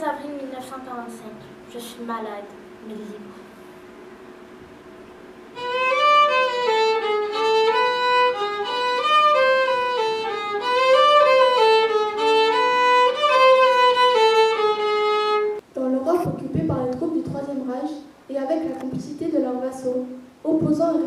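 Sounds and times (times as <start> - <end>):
solo violin playing slow melody: 5.5 - 15.6.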